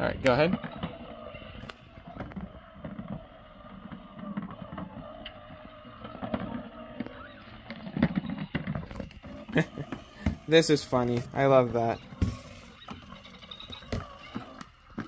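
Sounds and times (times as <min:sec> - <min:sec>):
plastic ball rolling on carpet: 0:00.0 - 0:15.0
toy motor whirring: 0:00.7 - 0:15.0.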